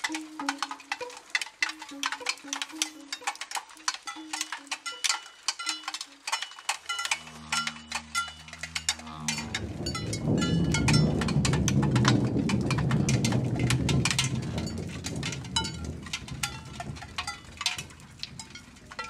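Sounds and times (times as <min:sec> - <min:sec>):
low melody: 0:00.0 - 0:14.6
irregular clicking percussion: 0:00.0 - 0:19.0.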